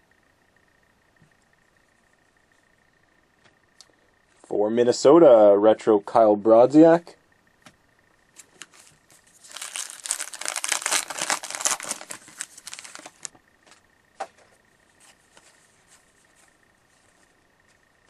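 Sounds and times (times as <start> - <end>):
wrapper tearing and crinkling: 8.6 - 13.3.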